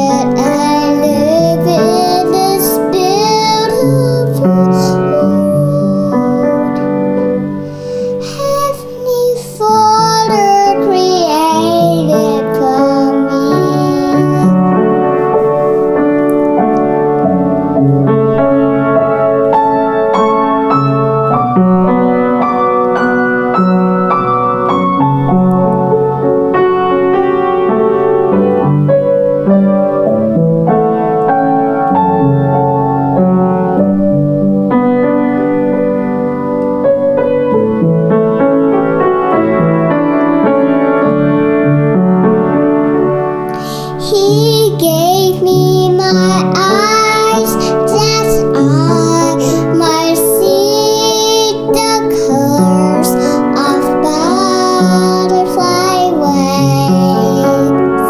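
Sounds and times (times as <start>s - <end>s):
girl singing: 0.0s - 14.9s, 43.5s - 58.0s
piano playing chords: 0.0s - 58.0s.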